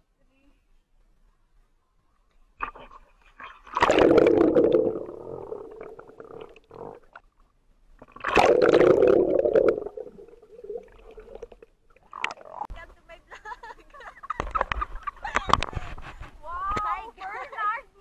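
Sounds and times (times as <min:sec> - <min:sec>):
muffled underwater bubbling: 0:03.6 - 0:07.2, 0:08.1 - 0:12.7
rushing water: 0:03.7 - 0:07.0, 0:08.2 - 0:12.7.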